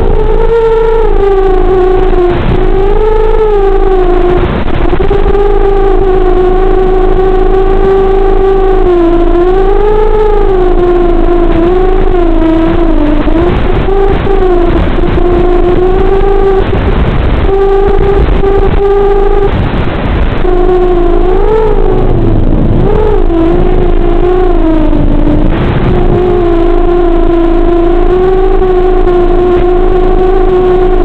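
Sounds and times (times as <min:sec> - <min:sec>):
drone motor buzzing whine: 0:00.0 - 0:31.0
rushing noise: 0:00.0 - 0:31.0.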